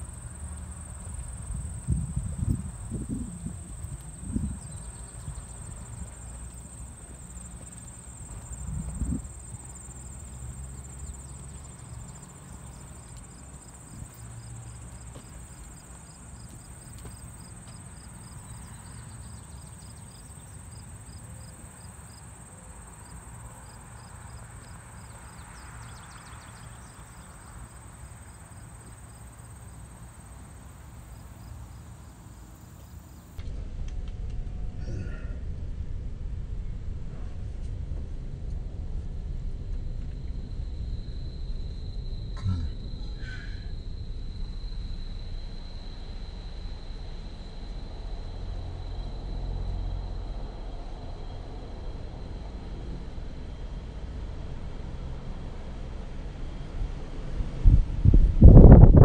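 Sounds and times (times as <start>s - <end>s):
low microphone rumble: 0.8s - 11.8s, 33.4s - 47.3s
insects singing: 40.7s - 47.5s.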